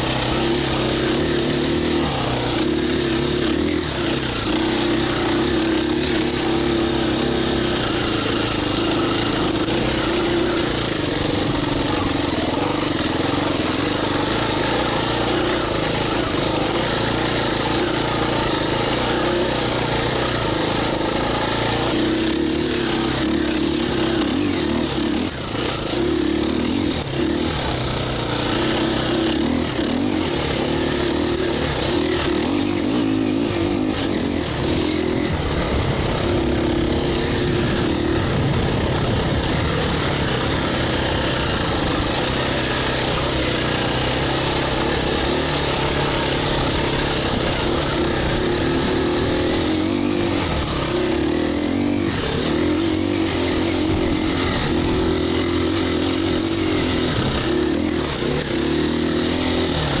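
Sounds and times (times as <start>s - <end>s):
motorcycle engine revving: 0.0s - 60.0s.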